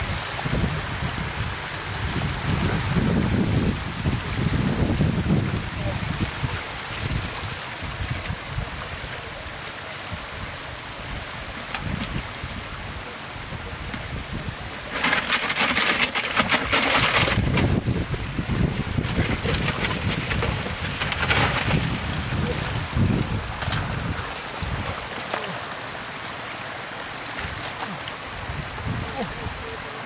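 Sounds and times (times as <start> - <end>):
wind rumble on microphone: 0.0 - 25.1, 28.3 - 29.9
trickling water: 0.0 - 30.0
fish splashing and thrashing: 13.8 - 29.8.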